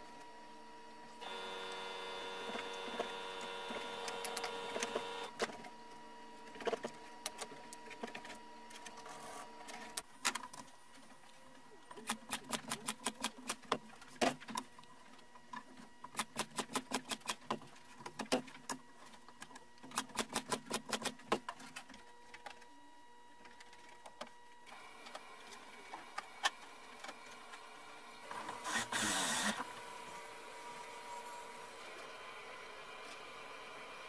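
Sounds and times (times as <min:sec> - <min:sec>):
rapid mechanical clicks: 0:24.7 - 0:34.0
steady hiss: 0:24.7 - 0:34.0.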